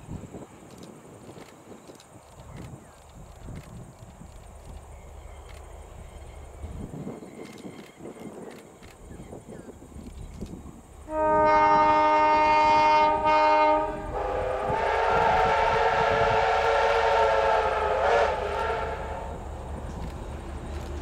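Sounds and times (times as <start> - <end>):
low rumble of moving train: 0.0 - 21.0
low train horn chord with hiss: 11.0 - 19.6
train horn blasts: 11.1 - 19.6.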